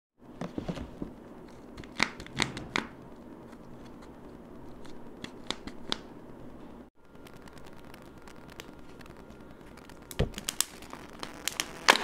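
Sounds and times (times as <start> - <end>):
wrapped eggs clicking and knocking: 7.0 - 12.0.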